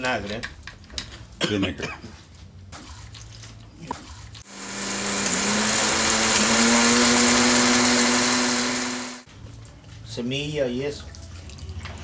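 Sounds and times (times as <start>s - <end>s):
blender running: 4.4s - 9.3s.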